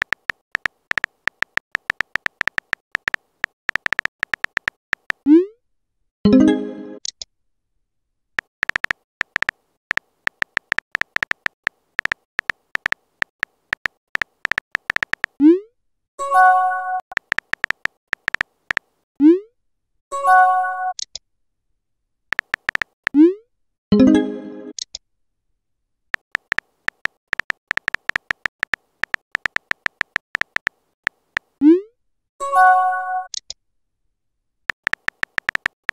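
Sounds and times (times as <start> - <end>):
smartphone keyboard typing clicks: 0.0 - 5.3, 8.4 - 15.4, 17.1 - 18.9, 22.3 - 23.2, 26.2 - 31.6, 34.7 - 35.9.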